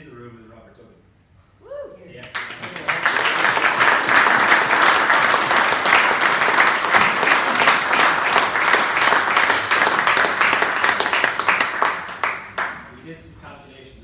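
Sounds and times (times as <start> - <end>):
audience applauding: 2.3 - 12.9.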